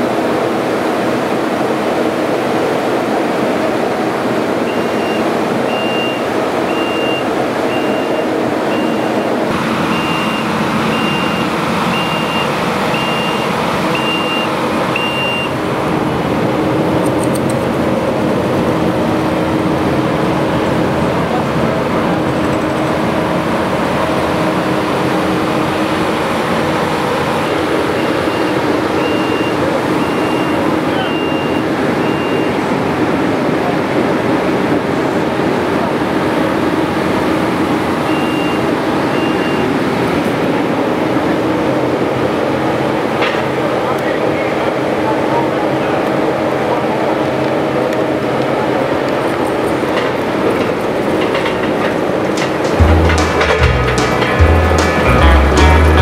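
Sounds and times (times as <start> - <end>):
machinery noise: 0.0 - 56.0
reversing alarm beeping: 4.6 - 15.7, 24.0 - 33.0, 37.4 - 40.2.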